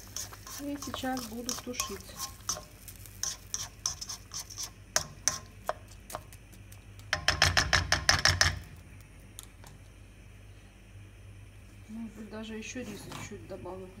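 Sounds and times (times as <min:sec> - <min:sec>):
plastic spatula stirring in pan: 0:00.0 - 0:08.4.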